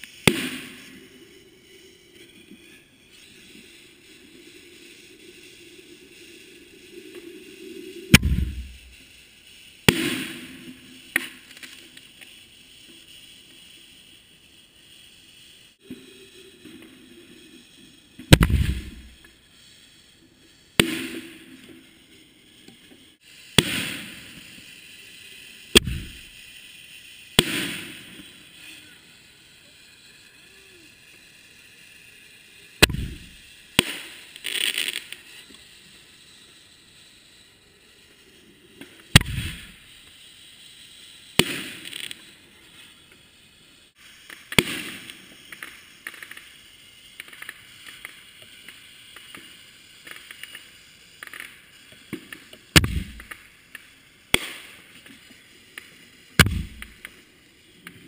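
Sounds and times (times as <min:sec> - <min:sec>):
firework launch bangs: 0:00.0 - 0:01.1, 0:08.1 - 0:09.2, 0:09.8 - 0:11.5, 0:18.2 - 0:19.3, 0:20.8 - 0:21.6, 0:23.5 - 0:24.5, 0:25.7 - 0:26.5, 0:27.3 - 0:28.6, 0:32.8 - 0:35.2, 0:39.1 - 0:39.8, 0:41.4 - 0:42.2, 0:44.5 - 0:46.4, 0:52.1 - 0:53.5, 0:54.3 - 0:54.9, 0:56.4 - 0:57.2
firework hiss: 0:00.0 - 0:58.0.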